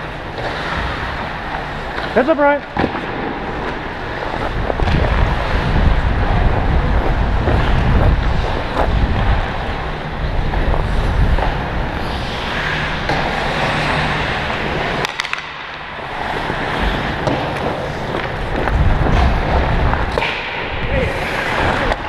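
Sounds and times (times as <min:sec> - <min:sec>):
skate blades scraping on ice: 0:03.5 - 0:22.0
wind on microphone: 0:04.4 - 0:13.0, 0:18.3 - 0:22.0.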